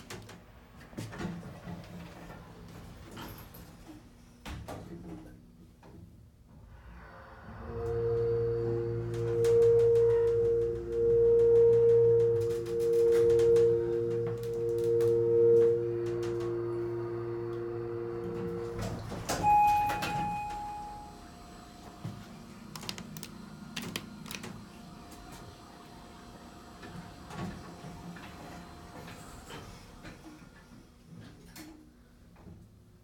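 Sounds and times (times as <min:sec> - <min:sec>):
elevator doors sliding open: 0:06.6 - 0:21.2
elevator car humming: 0:06.6 - 0:30.3
faint steady tone: 0:07.5 - 0:21.2
short electronic beep: 0:07.7 - 0:21.1.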